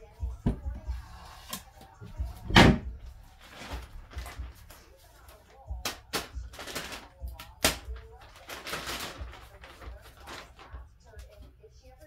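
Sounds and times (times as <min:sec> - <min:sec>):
plastic bags crinkling: 0:03.2 - 0:11.4.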